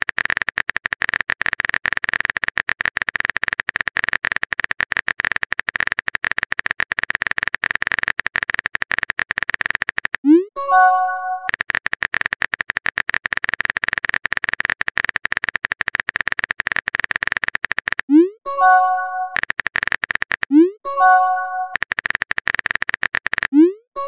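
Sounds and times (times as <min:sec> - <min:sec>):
keyboard typing clicks: 0:01.9 - 0:24.0.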